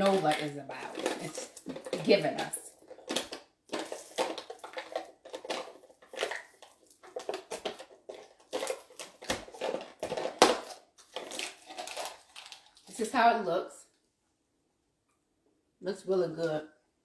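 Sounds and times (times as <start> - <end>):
plastic packaging crinkling: 0.0 - 13.2.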